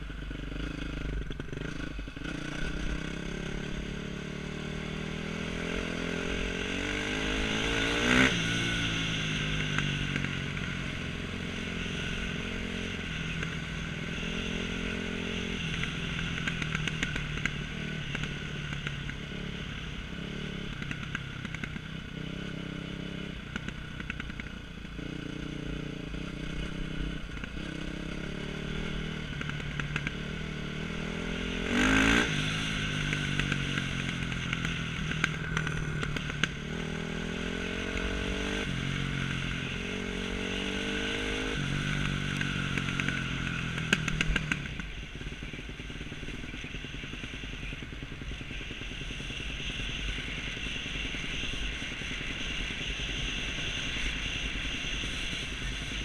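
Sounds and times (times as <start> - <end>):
dirt bike engine revving: 0.0 - 20.8, 25.0 - 47.8.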